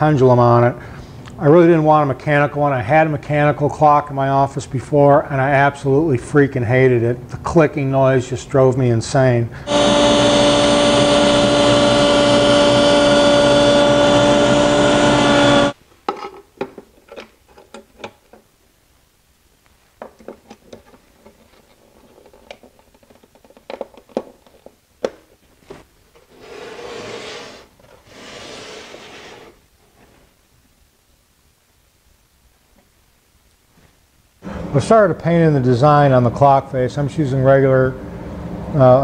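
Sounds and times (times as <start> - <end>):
power tool cutting wood: 9.7 - 15.8
short rubbing or hissing: 26.3 - 29.6.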